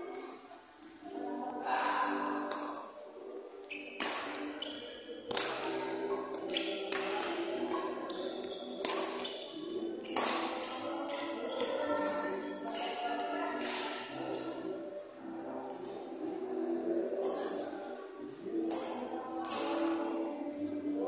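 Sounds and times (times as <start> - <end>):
badminton racket hitting shuttlecock: 8.8 - 9.4.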